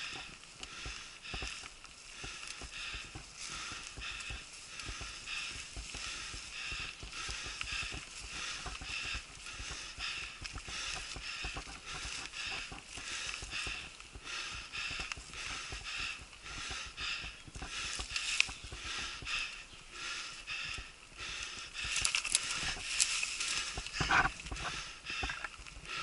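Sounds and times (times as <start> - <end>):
bike rattling: 0.0 - 26.0
bike tyres over dry leaves: 0.0 - 26.0
sharp clicks and knocks: 0.1 - 19.5.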